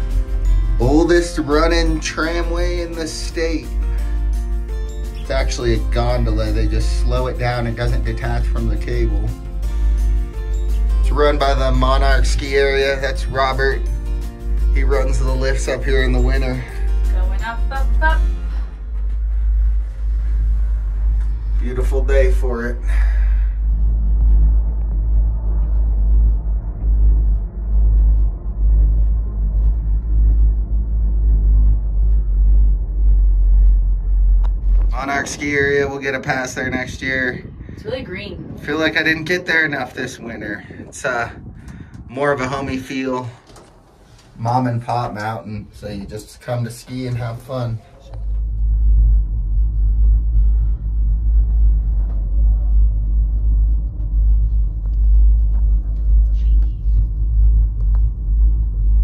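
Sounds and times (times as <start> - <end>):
gondola cabin low rumble: 0.0 - 59.0.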